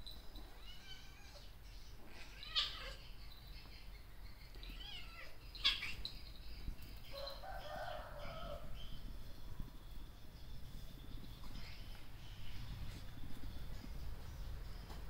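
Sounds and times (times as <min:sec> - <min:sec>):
high-pitched chirping animal calls: 0:00.6 - 0:07.4.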